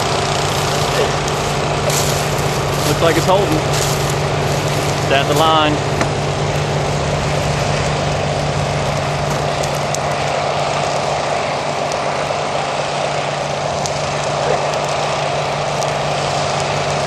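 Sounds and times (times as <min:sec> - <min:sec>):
faint crackles: 0:00.0 - 0:17.0
rushing noise: 0:00.0 - 0:17.0
vehicle engine humming: 0:00.0 - 0:17.0.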